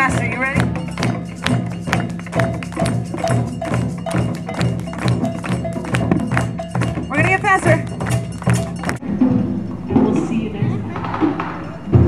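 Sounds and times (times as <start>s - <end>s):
cowbell: 0.0s - 9.0s
maracas: 0.0s - 9.0s
cajon and drum strokes: 0.0s - 12.0s.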